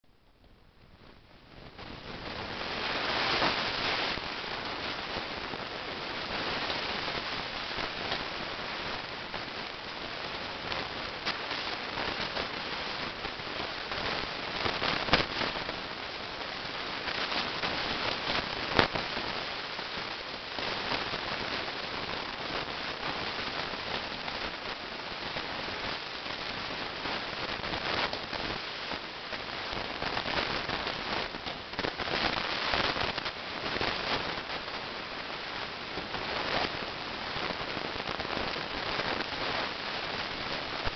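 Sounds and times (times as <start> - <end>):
steady rushing noise: 0.1 - 40.9.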